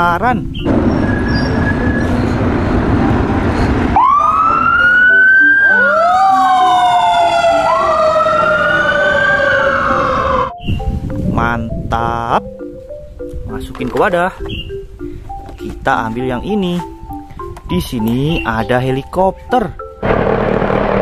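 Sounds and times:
loud steady rushing noise: 0:00.6 - 0:05.5, 0:20.0 - 0:21.0
fire engine siren wailing: 0:00.7 - 0:10.6, 0:20.0 - 0:21.0.

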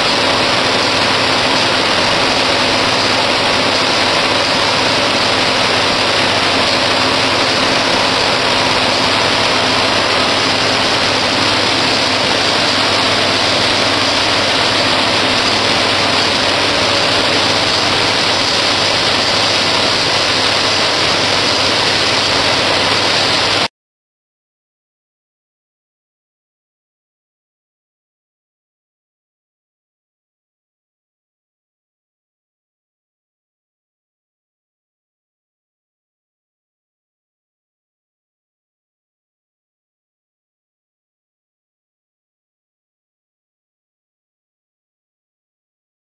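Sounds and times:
paper sheeter machine running: 0:00.0 - 0:23.7.

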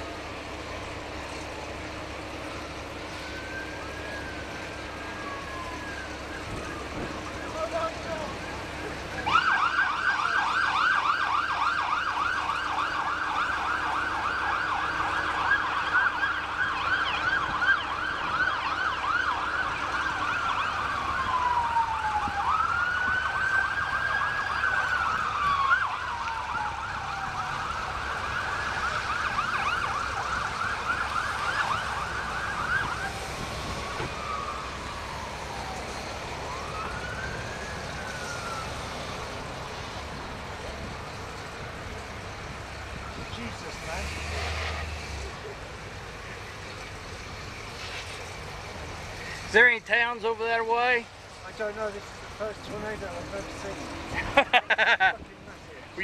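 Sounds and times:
electronic siren yelping and wailing: 0:03.2 - 0:39.5.

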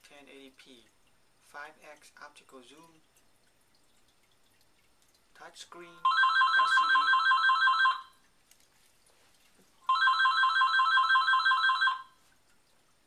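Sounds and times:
telephone ringing two-tone warble: 0:06.1 - 0:08.1, 0:09.9 - 0:12.2.

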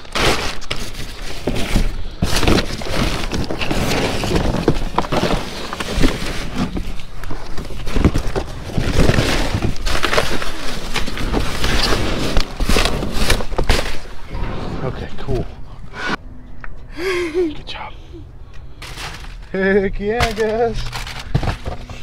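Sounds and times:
rummaging through trash: 0:00.0 - 0:14.3, 0:18.8 - 0:22.0.

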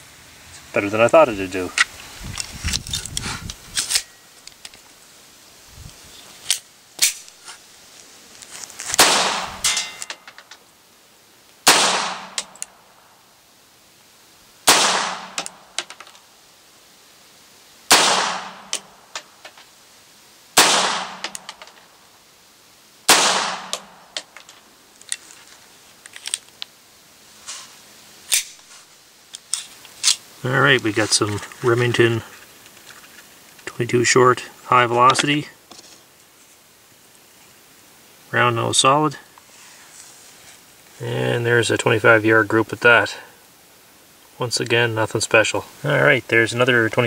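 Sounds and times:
pistol shots with echo: 0:09.0 - 0:09.9, 0:11.7 - 0:12.5, 0:14.7 - 0:15.5, 0:17.9 - 0:18.7, 0:20.6 - 0:21.4, 0:23.1 - 0:23.9.

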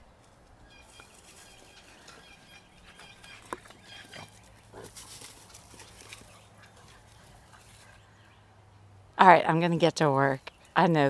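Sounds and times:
dogs playing: 0:00.8 - 0:08.4.

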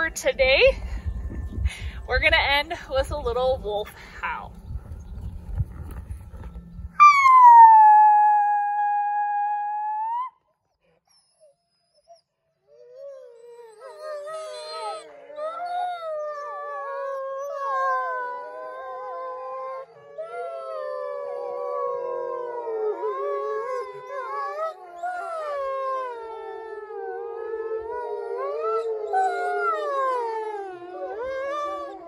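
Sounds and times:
wolves howling in chorus: 0:13.1 - 0:32.0.

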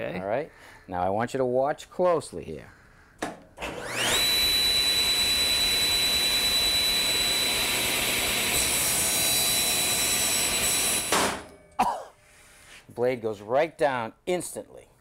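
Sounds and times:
table saw running: 0:03.6 - 0:11.5.

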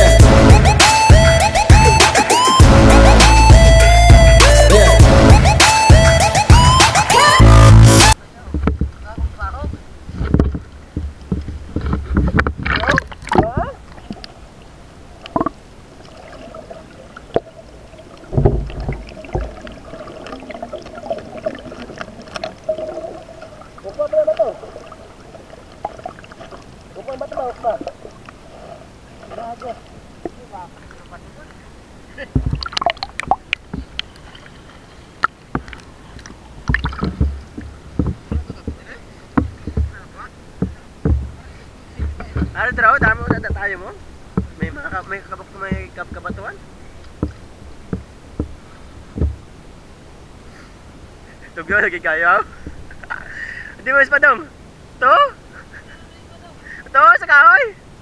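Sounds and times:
muffled underwater thumps: 0:00.2 - 0:02.9, 0:07.9 - 0:14.4, 0:15.2 - 0:28.4, 0:32.2 - 0:34.2, 0:35.2 - 0:49.7, 0:52.5 - 0:53.2
water sloshing and gurgling: 0:08.1 - 0:56.9
faint steady hum: 0:08.1 - 0:58.0.

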